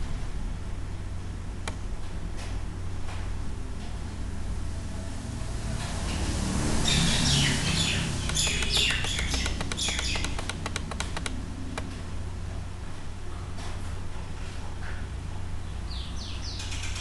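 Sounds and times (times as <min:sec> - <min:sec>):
birds chirping: 0:06.8 - 0:11.8, 0:15.6 - 0:17.0
computer mouse clicking: 0:08.3 - 0:11.9.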